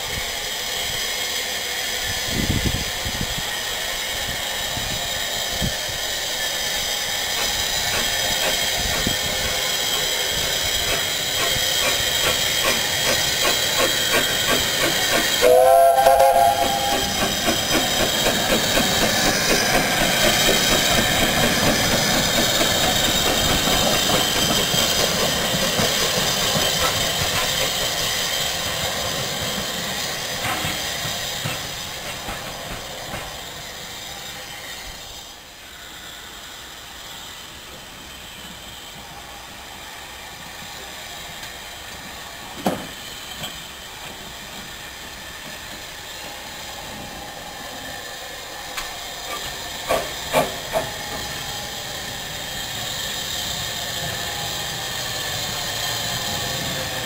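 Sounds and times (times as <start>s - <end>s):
steam engine chuffing: 0.0s - 35.3s, 40.6s - 57.0s
steam hissing: 0.0s - 57.0s
steam whistle blast: 15.3s - 17.3s.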